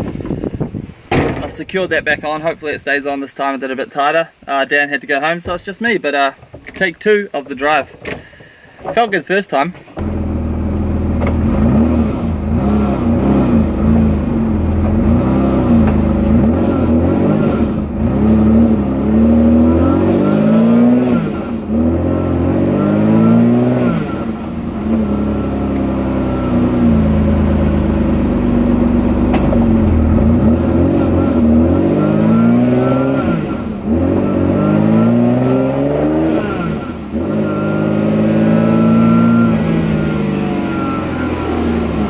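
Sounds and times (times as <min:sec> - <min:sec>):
car engine accelerating: 0:10.0 - 0:42.0.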